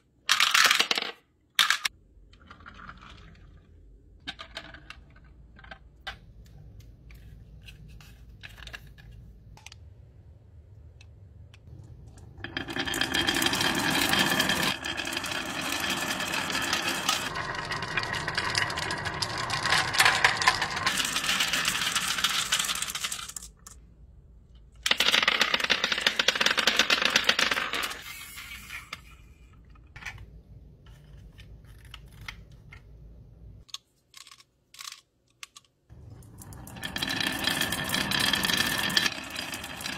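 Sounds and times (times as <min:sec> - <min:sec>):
marbles clattering down wooden slope: 0:12.4 - 0:23.6, 0:24.9 - 0:28.0, 0:36.0 - 0:39.9.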